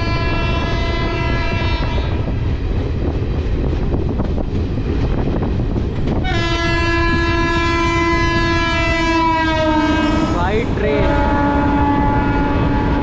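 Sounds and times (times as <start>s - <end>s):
train horn blast: 0.0s - 2.3s, 6.2s - 13.0s
train rumble: 0.0s - 13.0s.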